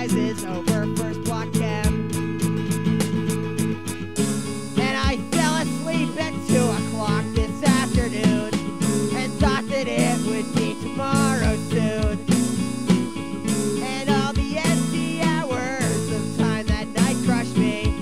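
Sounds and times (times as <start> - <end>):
guitar: 0.0 - 18.0
lo-fi folk punk song: 0.0 - 18.0
low drum beat: 0.0 - 18.0.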